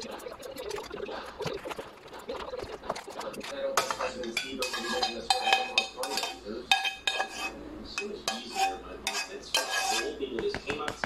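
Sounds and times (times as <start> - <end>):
metal ladle clinking in pan: 3.8 - 10.1.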